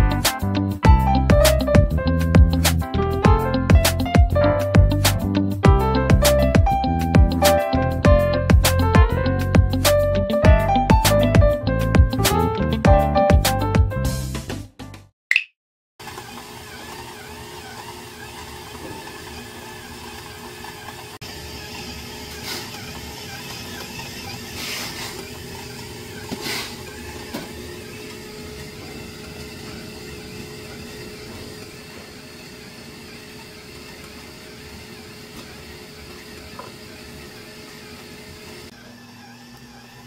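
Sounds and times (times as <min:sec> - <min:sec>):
steady machine hum: 0:25.2 - 0:40.0.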